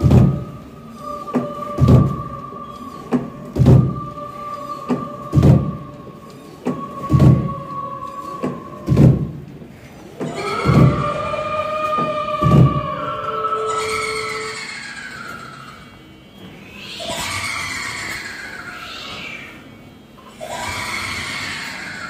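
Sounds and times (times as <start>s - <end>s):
held drone: 0.0s - 9.6s
eerie music: 0.0s - 22.0s
deep booming beat: 1.8s - 2.3s, 3.6s - 4.0s, 5.3s - 5.8s, 7.1s - 7.6s, 8.9s - 9.4s, 12.4s - 12.9s.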